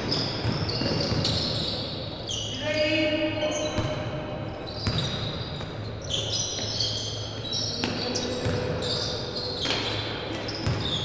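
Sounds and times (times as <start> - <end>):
basketball bouncing on gym floor: 0.0 - 1.9, 3.5 - 6.8, 7.5 - 11.0
sneakers squeaking on court: 0.0 - 11.0.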